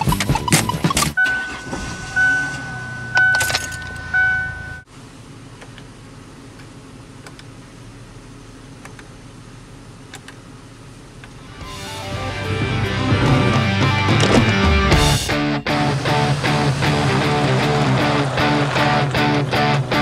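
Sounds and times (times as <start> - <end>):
car warning chime: 1.2 - 4.9
cabin hum: 12.4 - 20.0.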